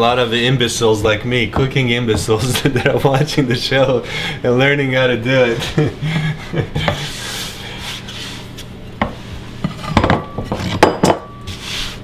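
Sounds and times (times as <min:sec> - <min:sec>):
rolling pin rubbing on dough: 0:06.8 - 0:12.0.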